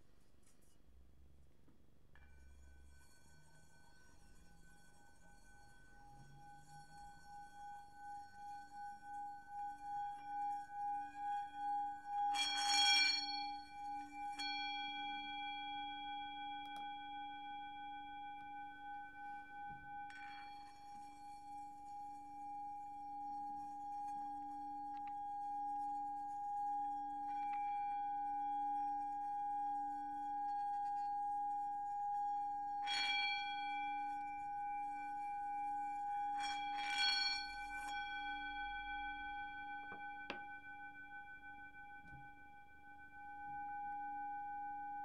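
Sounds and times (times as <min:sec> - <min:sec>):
singing bowl ringing: 0:09.5 - 0:45.0.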